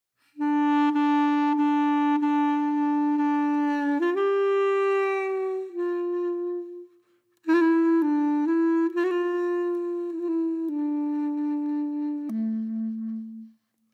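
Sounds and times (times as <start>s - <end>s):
wind instrument long notes: 0.3s - 13.9s.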